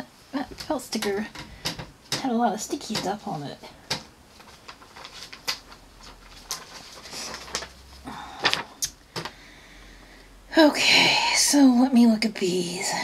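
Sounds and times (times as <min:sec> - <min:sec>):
paper rustling: 0:02.6 - 0:09.4.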